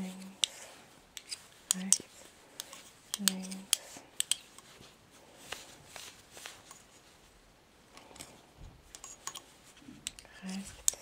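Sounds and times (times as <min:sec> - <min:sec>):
yarn rustling: 0:00.0 - 0:07.6
knitting needles clicking: 0:00.1 - 0:04.7, 0:08.9 - 0:11.0.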